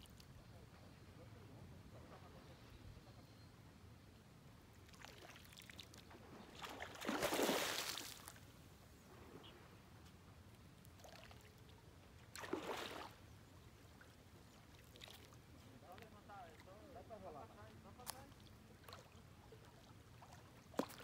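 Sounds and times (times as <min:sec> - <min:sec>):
fish splashing at water surface: 0:06.6 - 0:08.4, 0:12.4 - 0:13.2.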